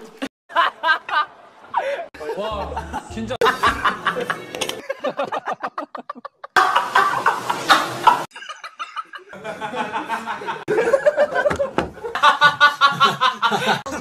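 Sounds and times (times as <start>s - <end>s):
young men laughing: 0.5s - 14.0s.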